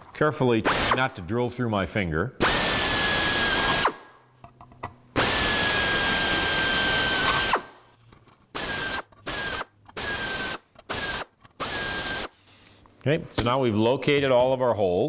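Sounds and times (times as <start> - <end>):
air drill whining: 2.4 - 4.0, 5.2 - 7.7, 8.5 - 12.4.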